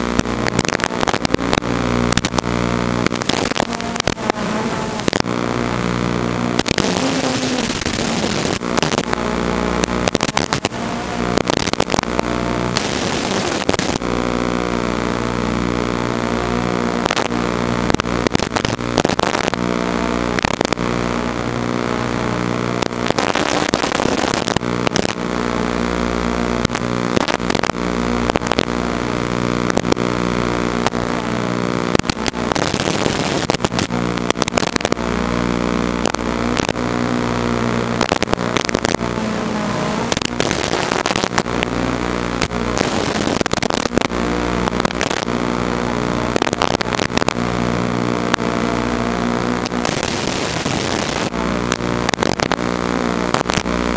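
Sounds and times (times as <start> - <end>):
crackles and pops: 0.0 - 53.9
quadcopter buzzing: 0.8 - 17.6, 36.7 - 43.1.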